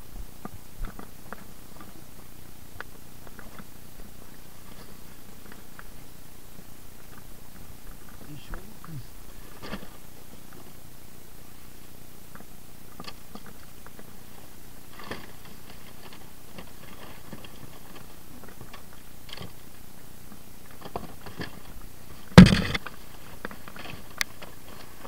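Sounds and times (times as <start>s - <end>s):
rubbish knocks and rustles: 22.3s - 23.0s.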